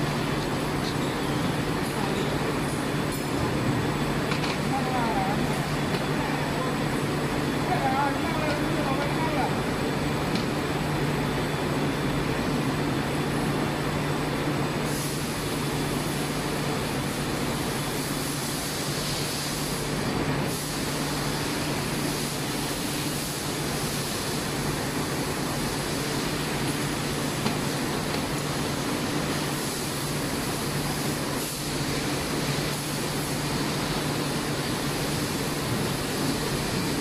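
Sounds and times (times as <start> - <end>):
low machinery hum: 0.0 - 18.8
broad hiss: 14.8 - 16.4, 17.9 - 37.0.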